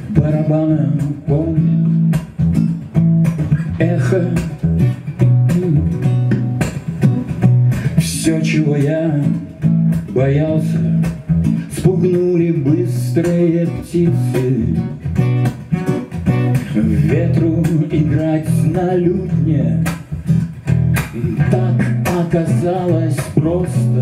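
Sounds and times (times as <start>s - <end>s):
man singing: 0.0s - 2.4s, 3.4s - 6.2s, 7.8s - 15.1s, 16.5s - 20.2s, 21.0s - 24.0s
acoustic guitar playing: 0.0s - 24.0s.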